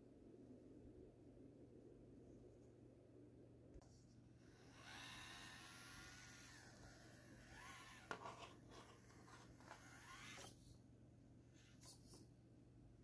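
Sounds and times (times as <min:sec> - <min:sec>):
small electric motor whining: 0:04.5 - 0:10.7.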